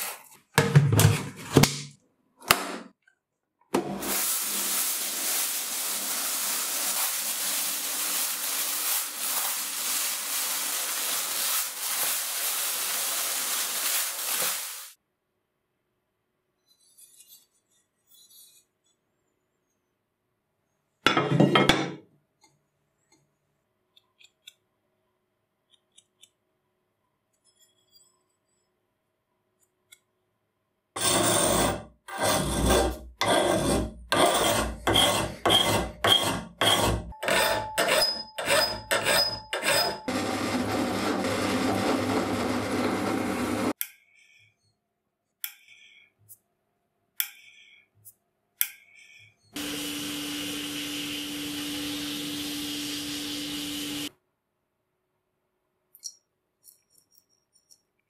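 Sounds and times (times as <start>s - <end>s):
rasping metal strokes: 31.0s - 40.1s
countersink bit cutting metal: 34.9s - 40.1s.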